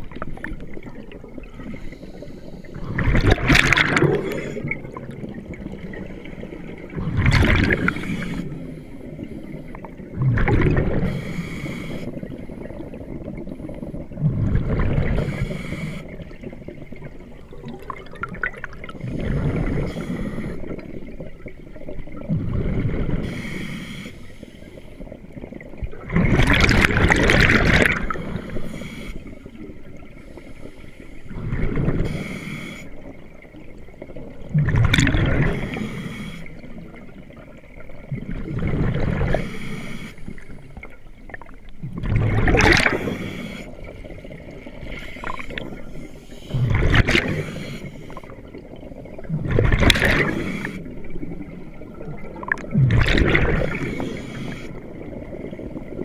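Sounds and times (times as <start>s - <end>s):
exhaled bubbles underwater: 0.0s - 56.0s.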